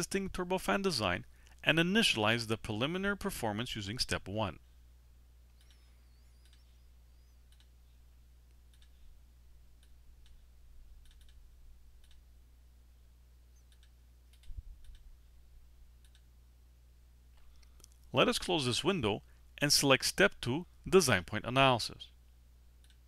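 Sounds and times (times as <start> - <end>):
steady low hum: 0.0 - 23.0
computer mouse clicks: 5.5 - 6.7, 7.5 - 7.8, 8.6 - 9.0, 11.0 - 11.4, 12.0 - 12.2, 13.6 - 15.1, 16.0 - 16.3, 22.8 - 23.0.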